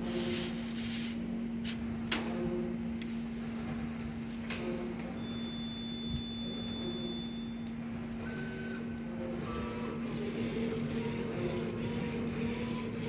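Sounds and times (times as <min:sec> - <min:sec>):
gantry motor whine: 0:04.5 - 0:13.0
laser cutter humming: 0:04.9 - 0:13.0
motors giving short high tones: 0:05.2 - 0:08.9, 0:09.5 - 0:13.0.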